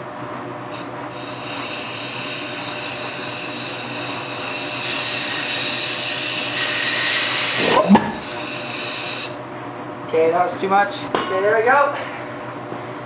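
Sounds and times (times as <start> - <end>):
compressed air hissing: 4.3 - 9.4.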